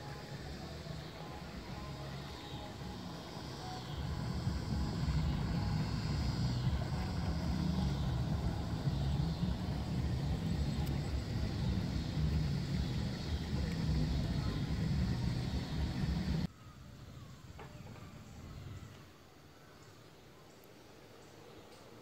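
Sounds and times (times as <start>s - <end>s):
outboard motor droning: 0.0s - 16.5s.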